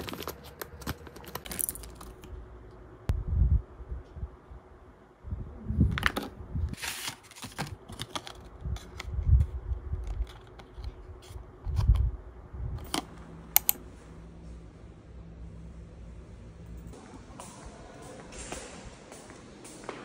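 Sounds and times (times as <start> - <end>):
plastic sleeves crinkling: 0.0 - 2.3.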